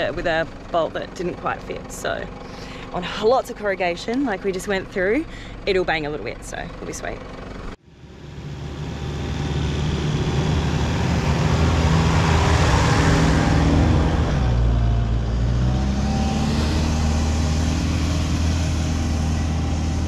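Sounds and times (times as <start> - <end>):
vehicle engine pulling under load: 0.0 - 3.4, 6.4 - 20.0.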